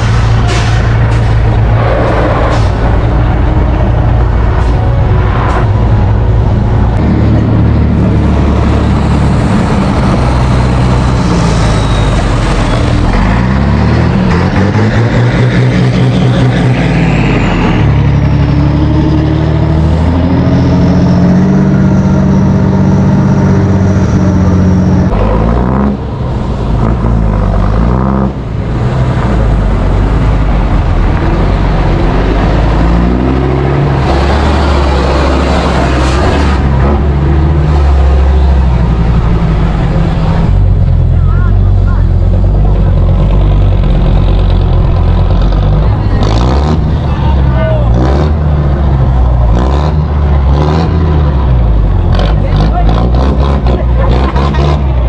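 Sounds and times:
diesel truck engines revving: 0.0s - 55.0s.

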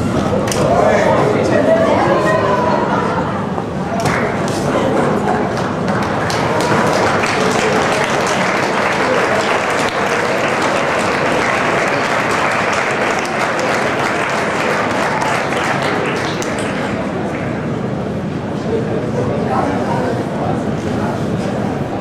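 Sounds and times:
crowd applauding: 3.8s - 17.7s.

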